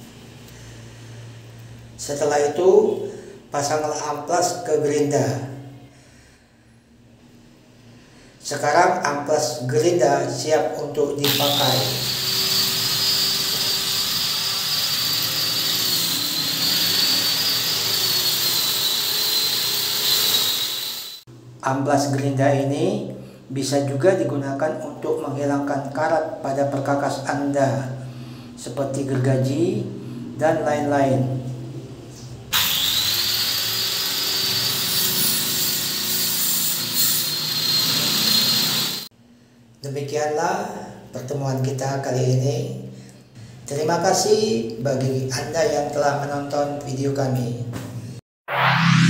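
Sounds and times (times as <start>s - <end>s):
angle grinder sanding wood: 11.2s - 21.2s, 32.6s - 39.1s.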